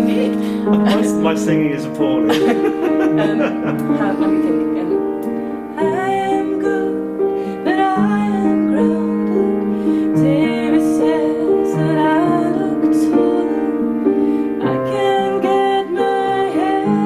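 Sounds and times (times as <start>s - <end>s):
piano chords: 0.0s - 17.0s
woman singing: 5.7s - 17.0s.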